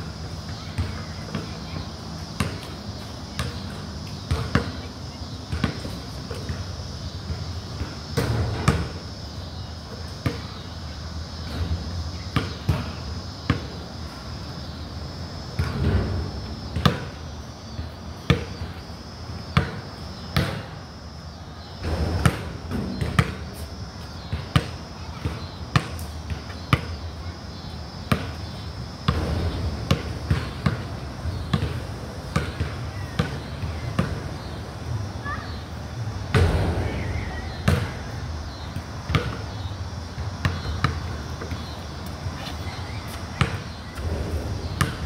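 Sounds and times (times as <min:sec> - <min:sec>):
basketball bouncing on concrete: 0:00.4 - 0:04.8, 0:05.4 - 0:08.9, 0:15.6 - 0:18.9, 0:19.5 - 0:20.7, 0:21.8 - 0:27.1, 0:28.1 - 0:34.5, 0:36.3 - 0:42.2, 0:43.0 - 0:45.0.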